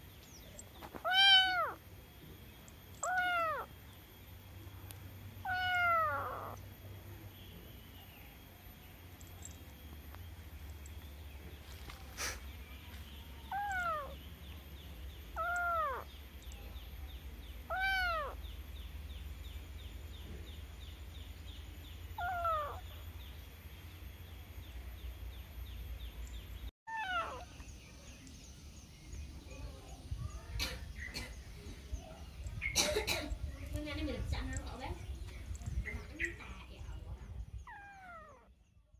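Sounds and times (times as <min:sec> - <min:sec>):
kitten meowing: 0:00.9 - 0:01.8, 0:03.0 - 0:03.7, 0:05.4 - 0:06.6, 0:13.5 - 0:14.2, 0:15.4 - 0:16.1, 0:17.7 - 0:18.4, 0:22.2 - 0:22.9, 0:26.9 - 0:27.5, 0:37.7 - 0:38.5.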